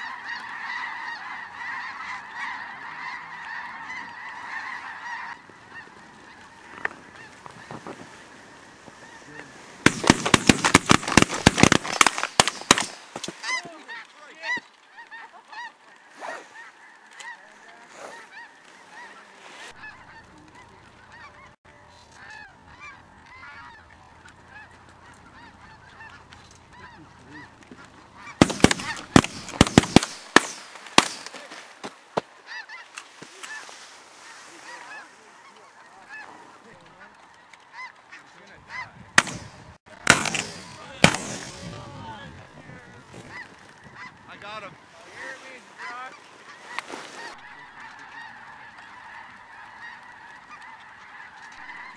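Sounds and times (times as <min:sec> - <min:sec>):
geese honking: 0:00.0 - 0:51.9
shotgun fire: 0:09.8 - 0:13.1, 0:28.4 - 0:31.4, 0:39.2 - 0:41.8.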